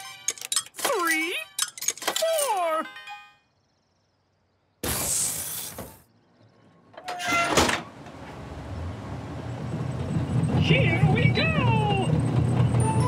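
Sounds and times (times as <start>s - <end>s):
hissing whoosh of sliding doors: 4.8s - 6.1s
low rumble of motor: 7.8s - 13.0s.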